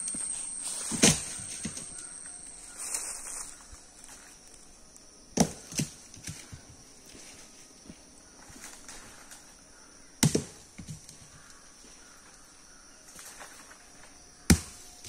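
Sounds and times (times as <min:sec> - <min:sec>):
coconut thudding on ground: 0:05.4 - 0:06.0, 0:10.2 - 0:10.6, 0:14.5 - 0:14.8.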